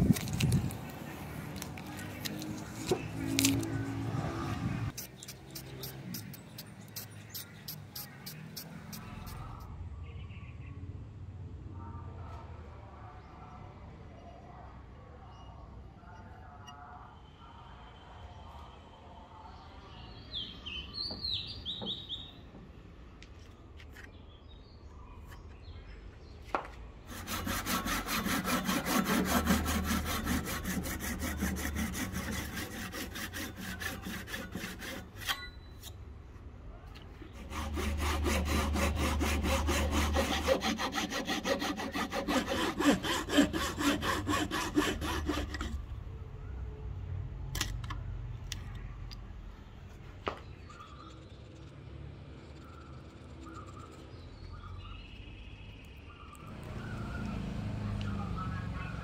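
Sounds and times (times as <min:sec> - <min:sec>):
hand saw cutting wood: 0:04.9 - 0:09.6, 0:27.1 - 0:35.5, 0:37.2 - 0:45.9.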